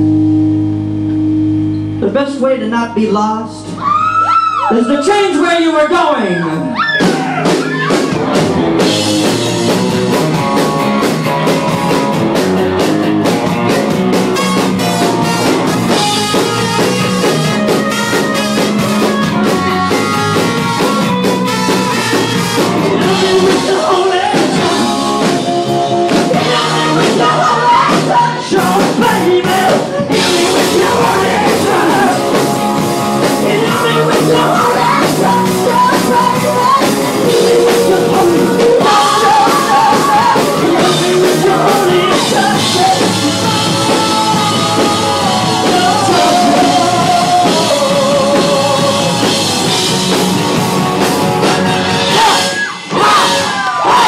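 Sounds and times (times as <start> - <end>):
rock band playing live: 0.0 - 54.0
drum kit: 6.6 - 54.0
person singing: 22.8 - 32.6, 33.2 - 49.7.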